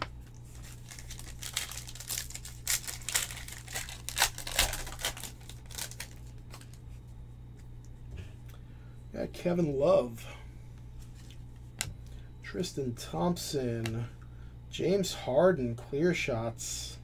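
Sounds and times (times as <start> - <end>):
foil wrapper crinkling: 0.2 - 6.9
foil wrapper tearing: 0.5 - 6.8.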